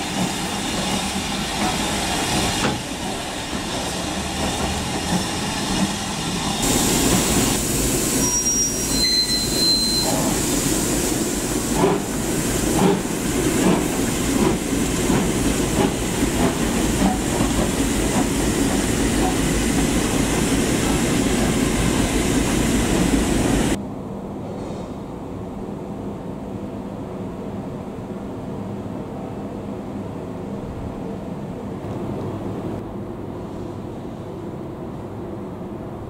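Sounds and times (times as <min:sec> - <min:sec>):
steam hissing: 0:00.0 - 0:23.8
steam locomotive chuffing: 0:00.0 - 0:23.8
high-pitched squeals: 0:08.1 - 0:10.4.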